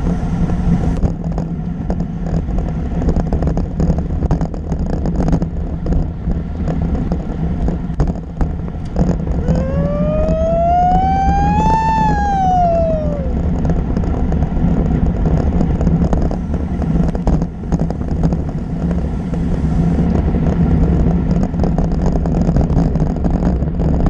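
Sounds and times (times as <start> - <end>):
bike tyres on asphalt: 0.0 - 24.0
wind rushing over microphone: 0.0 - 24.0
whistle-like tone: 9.4 - 13.4.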